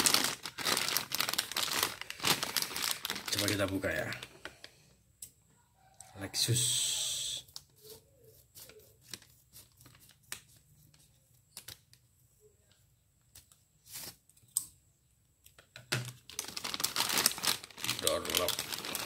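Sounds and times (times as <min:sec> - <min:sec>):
plastic bag crinkling: 0:00.0 - 0:04.6, 0:16.1 - 0:19.0.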